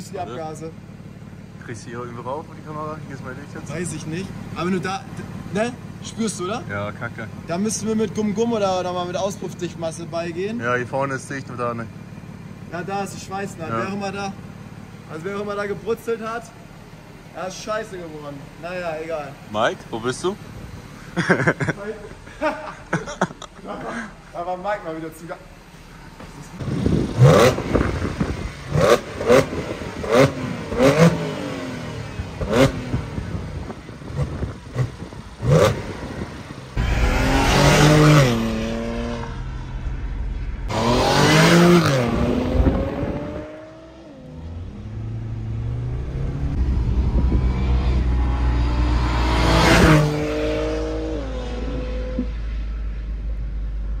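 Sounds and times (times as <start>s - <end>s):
car engine throttle blips: 0.6s - 54.0s
car accelerating through gears: 26.7s - 33.3s, 34.1s - 52.6s.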